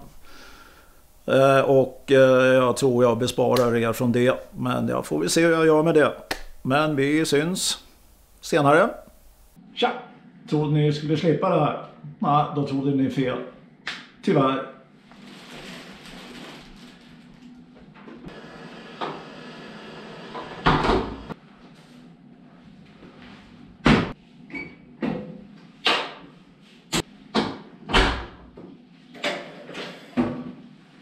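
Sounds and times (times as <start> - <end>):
clothes and bag rustling: 15.1 - 17.6.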